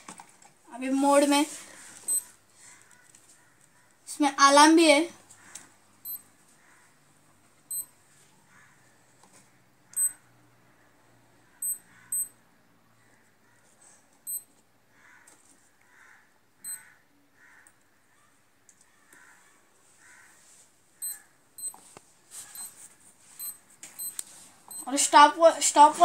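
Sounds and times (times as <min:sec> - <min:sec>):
digital wristwatch beeping: 0:02.0 - 0:02.3, 0:06.0 - 0:06.3, 0:07.7 - 0:07.9, 0:09.9 - 0:10.2, 0:11.6 - 0:12.4, 0:14.3 - 0:14.5, 0:16.6 - 0:16.8, 0:21.0 - 0:21.8, 0:22.5 - 0:22.8, 0:23.4 - 0:25.0.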